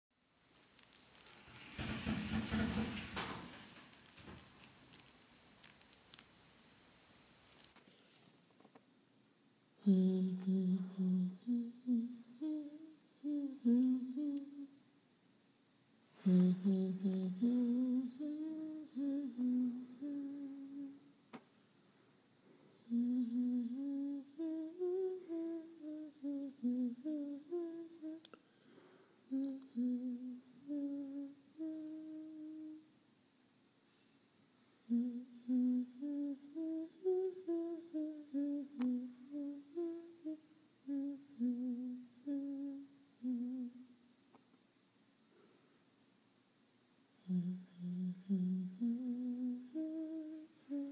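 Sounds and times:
person humming a tune: 0:09.8 - 0:14.8, 0:16.2 - 0:21.1, 0:22.8 - 0:28.4, 0:29.3 - 0:32.9, 0:34.8 - 0:44.0, 0:47.2 - 0:50.9.

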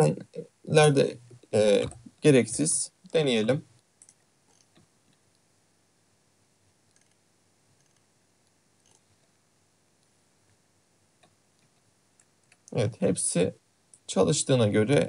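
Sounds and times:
mouse and keyboard clicks: 0:04.0 - 0:04.9, 0:06.9 - 0:07.2, 0:07.8 - 0:08.0.

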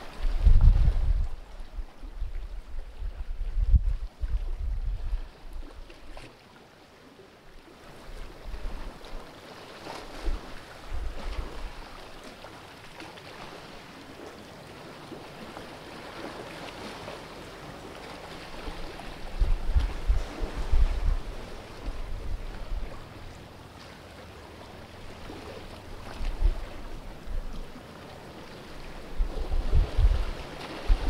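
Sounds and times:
sea water lapping on rocks: 0:07.9 - 0:31.0.

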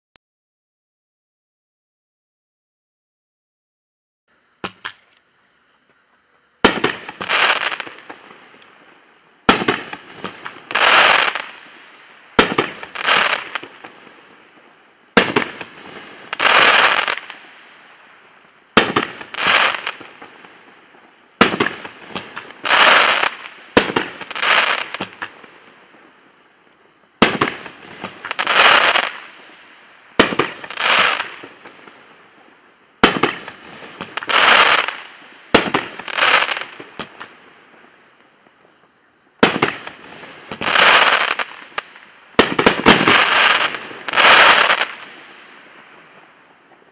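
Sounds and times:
firework shell crackling burst: 0:09.5 - 0:14.0, 0:21.4 - 0:25.4, 0:27.2 - 0:29.4, 0:39.4 - 0:45.2.

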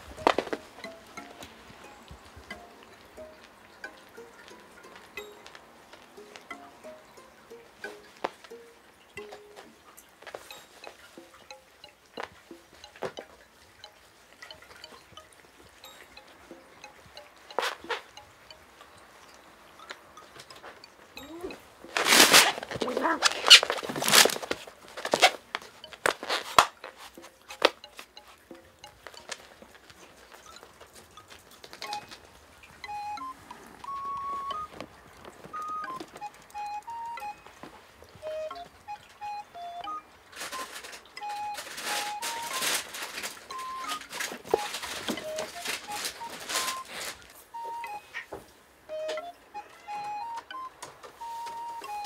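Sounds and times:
light background tune: 0:00.0 - 0:52.0
cats scuffling and tapping: 0:09.2 - 0:18.2, 0:21.8 - 0:32.8, 0:33.4 - 0:36.2, 0:41.6 - 0:47.5
kitten rustling and scratching: 0:19.8 - 0:32.8, 0:40.3 - 0:47.6.

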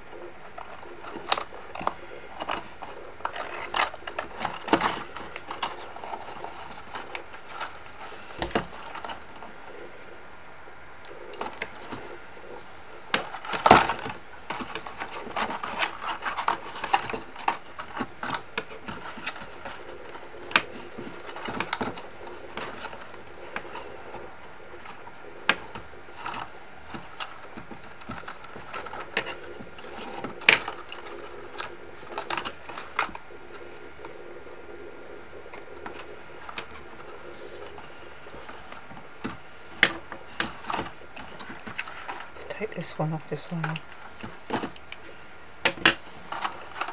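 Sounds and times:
stiff card crinkling and clicking: 0:00.1 - 0:10.1, 0:11.0 - 0:46.9.

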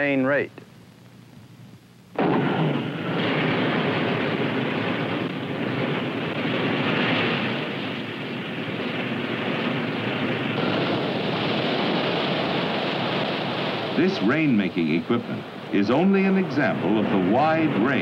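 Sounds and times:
rocket sled motors roaring: 0:02.2 - 0:18.0.

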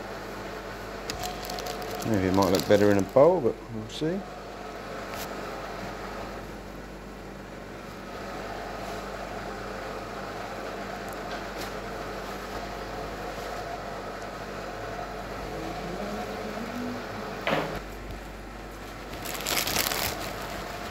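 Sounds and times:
kitchen equipment humming: 0:00.0 - 0:20.9.

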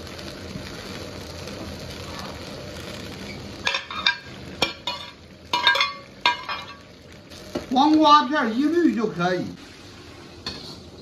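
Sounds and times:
oil sizzling: 0:00.0 - 0:11.0
ladle scraping a wok: 0:09.6 - 0:11.0.

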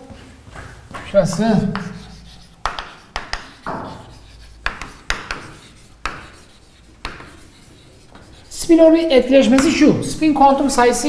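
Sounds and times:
pen scratching while writing: 0:01.3 - 0:09.8.

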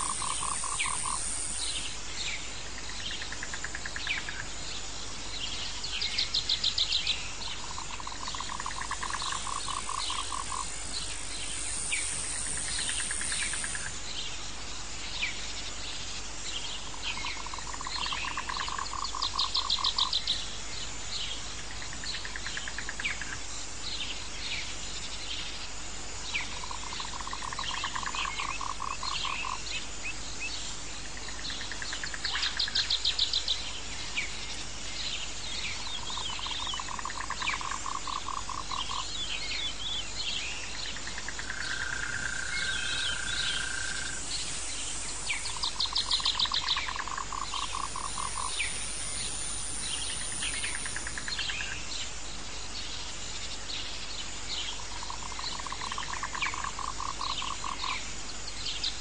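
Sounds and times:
rapid pulsed calls: 0:00.0 - 0:02.0, 0:07.6 - 0:14.0, 0:41.0 - 0:51.8
high insect drone: 0:00.0 - 0:59.0.

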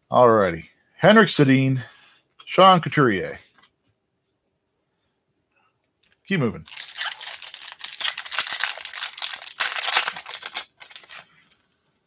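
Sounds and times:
foil wrapper crinkling: 0:06.7 - 0:11.7.

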